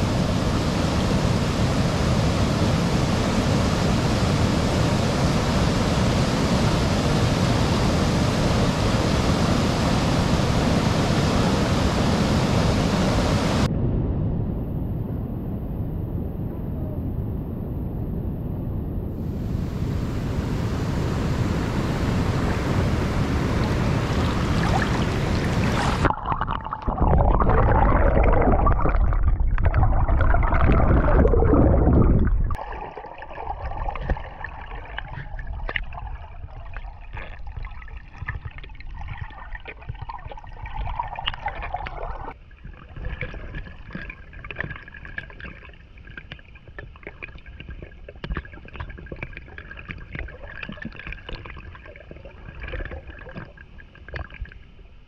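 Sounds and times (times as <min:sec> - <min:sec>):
creek water rushing: 0:00.0 - 0:13.7, 0:19.5 - 0:26.1
water gurgling and splashing: 0:00.0 - 0:13.7, 0:19.7 - 0:55.0.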